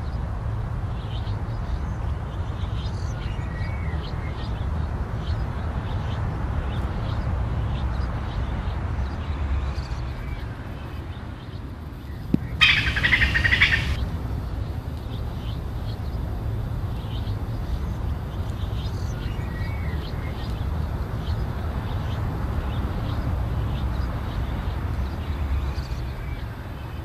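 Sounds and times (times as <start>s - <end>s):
steady low rumble: 0.0s - 27.0s
faint bird chirps: 12.1s - 14.0s
bird trilling: 12.4s - 14.0s.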